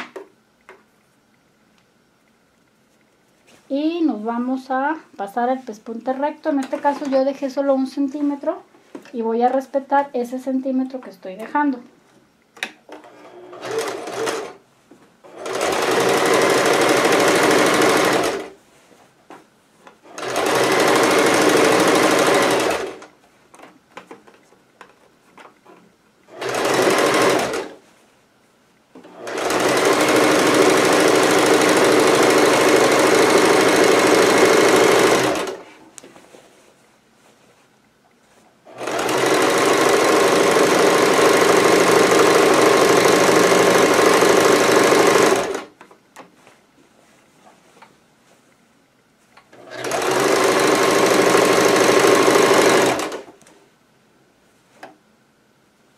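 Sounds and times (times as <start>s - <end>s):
sewing machine stitching: 12.9s - 14.6s, 15.2s - 18.6s, 20.0s - 23.1s, 26.3s - 27.8s, 29.0s - 35.7s, 38.7s - 45.8s, 49.5s - 53.4s.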